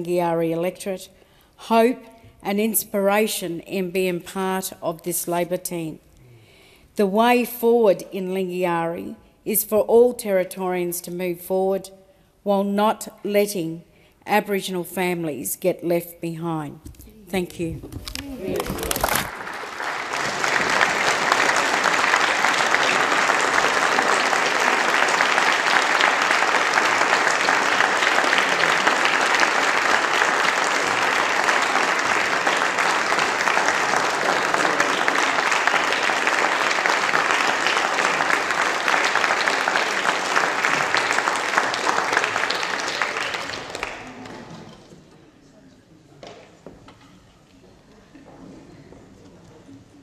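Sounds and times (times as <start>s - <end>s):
crowd applauding: 18.1s - 44.8s.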